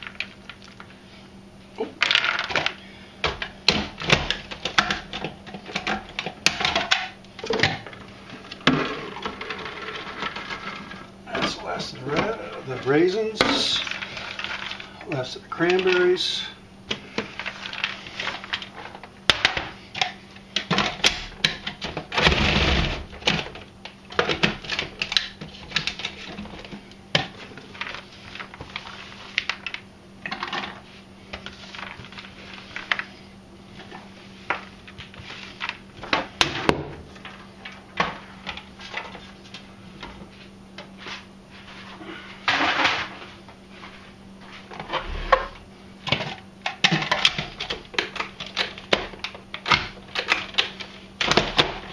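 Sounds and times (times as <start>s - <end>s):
food processor chopping berries: 20.6s - 23.4s.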